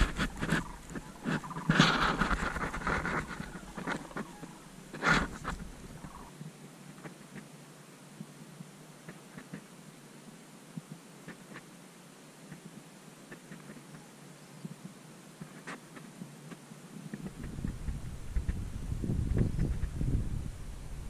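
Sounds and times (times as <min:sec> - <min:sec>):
fabric and mesh rustling: 0:00.0 - 0:06.2.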